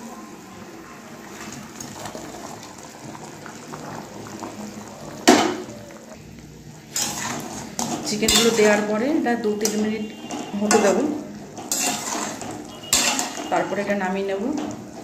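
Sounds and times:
sauce bubbling at the boil: 0.0s - 8.2s, 10.0s - 13.9s.

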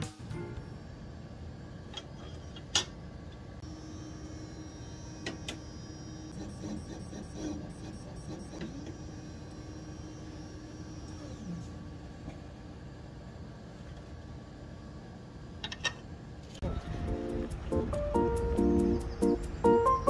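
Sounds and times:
low lab hum: 0.0s - 20.0s
motor whine: 3.6s - 12.9s
rhythmic mechanical stuttering: 3.8s - 10.4s.

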